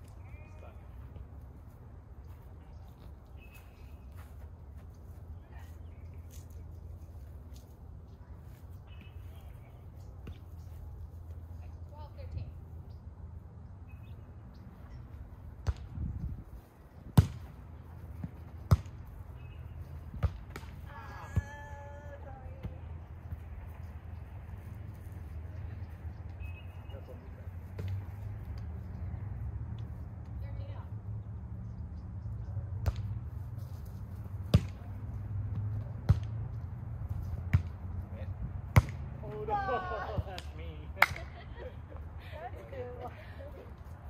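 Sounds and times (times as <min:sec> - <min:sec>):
volleyball slaps: 0:17.2 - 0:17.5, 0:20.2 - 0:20.8, 0:34.5 - 0:34.8, 0:38.7 - 0:39.4, 0:40.1 - 0:41.3.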